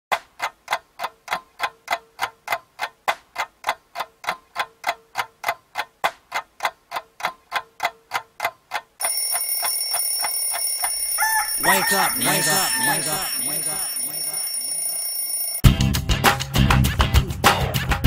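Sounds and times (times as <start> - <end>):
clock ticking: 0.1 - 15.6
alarm with high tones: 9.0 - 15.6.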